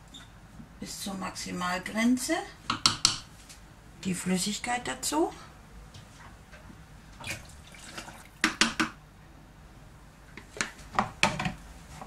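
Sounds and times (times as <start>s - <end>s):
liquid pouring into bowl: 7.2s - 8.4s.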